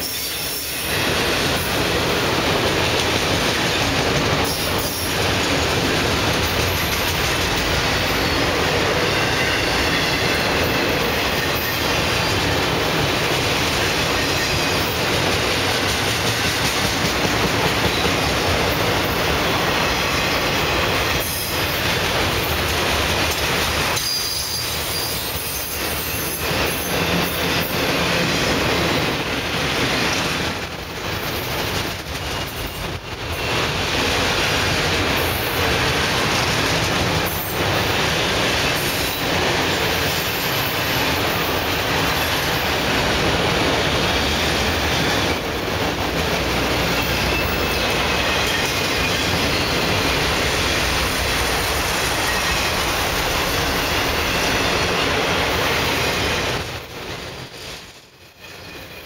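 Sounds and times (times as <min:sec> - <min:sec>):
freight cars rumbling on rails: 0:00.0 - 0:59.0
wheel squeal: 0:24.0 - 0:27.4.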